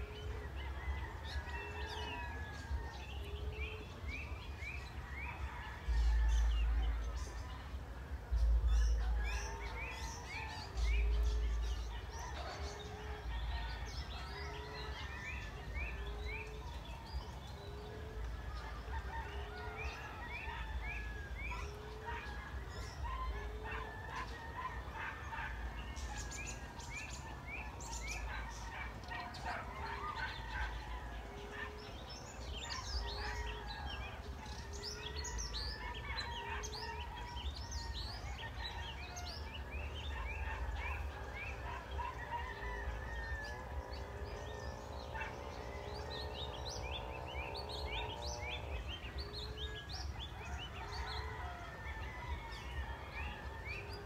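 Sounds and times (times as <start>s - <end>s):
dove cooing: 8.3s - 54.0s
small birds chirping: 8.3s - 54.0s.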